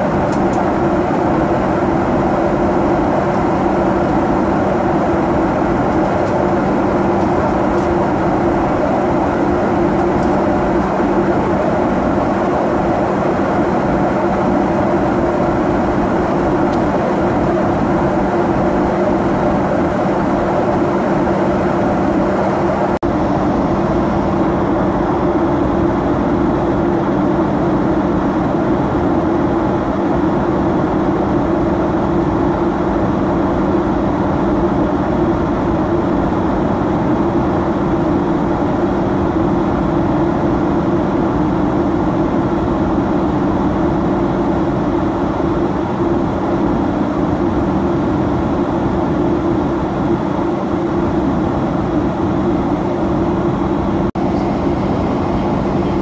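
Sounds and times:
airplane engines and airflow roar: 0.0s - 56.0s
low even hum: 48.3s - 56.0s.

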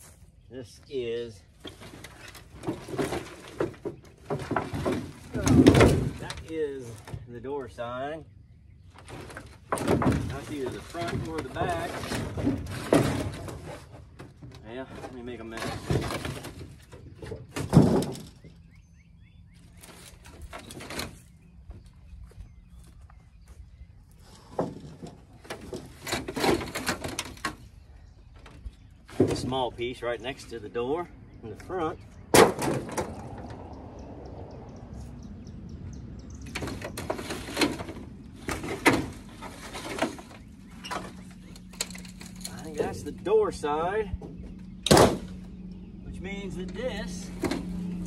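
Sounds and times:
scrap metal scraping clatter: 9.0s - 18.4s, 24.5s - 27.6s, 36.5s - 43.1s
bird chirping: 18.3s - 24.6s, 27.6s - 32.4s, 33.1s - 37.0s, 39.8s - 48.0s.

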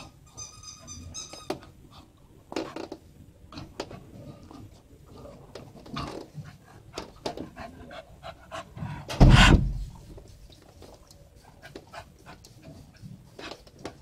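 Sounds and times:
dog panting: 6.4s - 9.6s, 11.4s - 14.0s
loud rustling thump: 9.1s - 10.0s.

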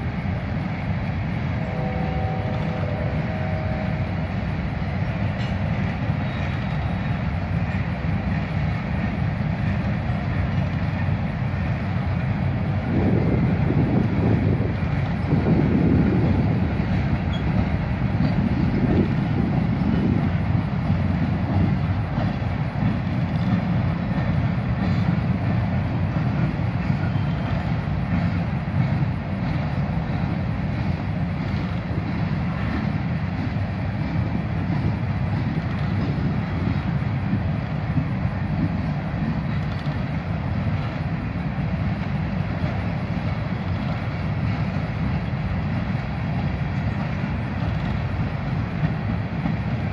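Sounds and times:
steel train wheels rumbling on rail: 0.0s - 49.9s.

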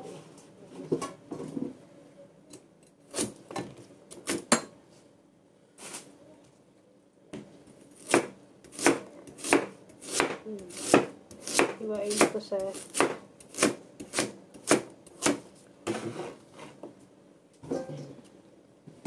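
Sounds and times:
cleaver chopping carrot on board: 8.0s - 15.4s.

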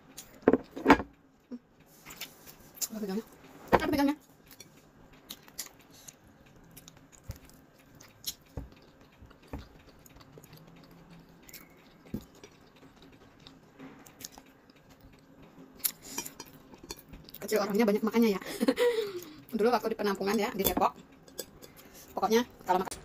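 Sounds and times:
person chewing: 4.5s - 17.4s.

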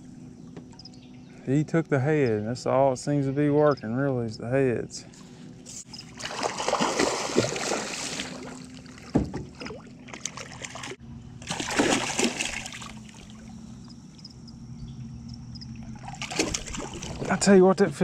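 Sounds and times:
fish splashing in water: 5.8s - 13.7s, 15.8s - 17.4s.

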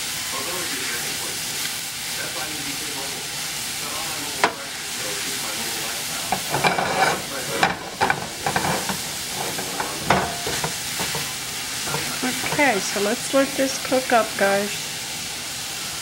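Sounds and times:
vegetables sizzling in a skillet: 0.0s - 16.0s
wooden spatula scraping pan: 6.3s - 13.1s.

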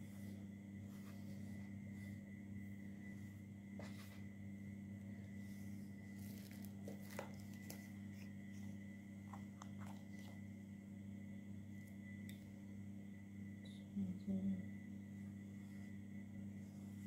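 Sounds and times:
steady low hum: 0.0s - 17.0s
faint clicks and crinkles: 6.0s - 10.5s.

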